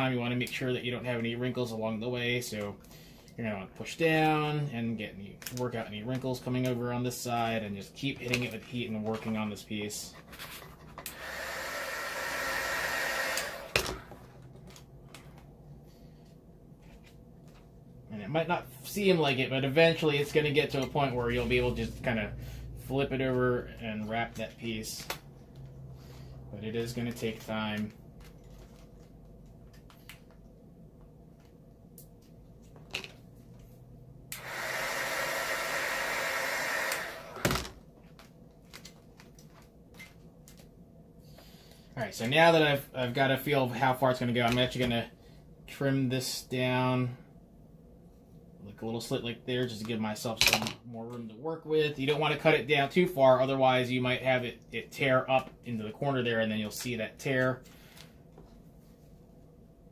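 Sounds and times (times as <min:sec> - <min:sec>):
heat gun blowing with whine: 0:11.0 - 0:14.3, 0:34.3 - 0:37.6.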